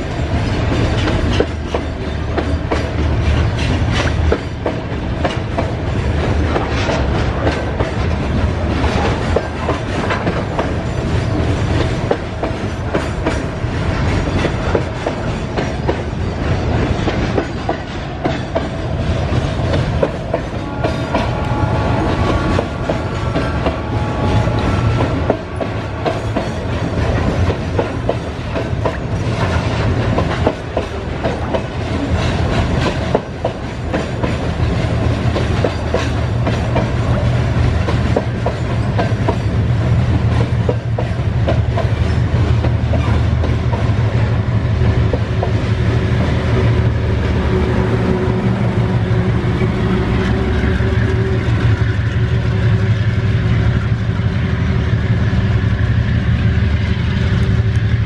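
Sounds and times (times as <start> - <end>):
freight train rolling past: 0.0 - 58.0
wheels clacking over rail joints: 0.3 - 44.4.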